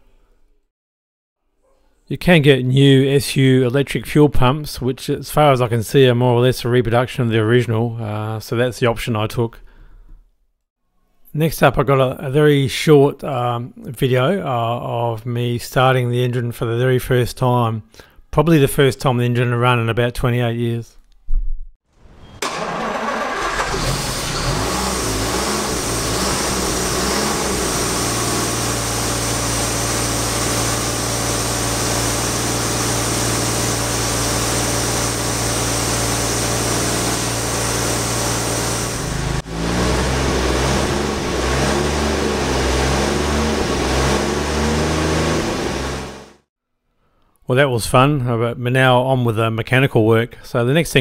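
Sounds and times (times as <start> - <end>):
car engine starting and running: 22.0 - 46.4.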